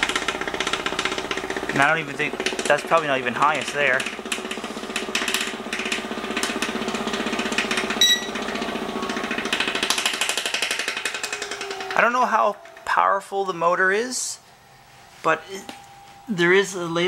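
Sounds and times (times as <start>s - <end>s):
vibration machine pulsing hum: 0.0s - 17.0s
short electronic beep: 8.0s - 8.4s.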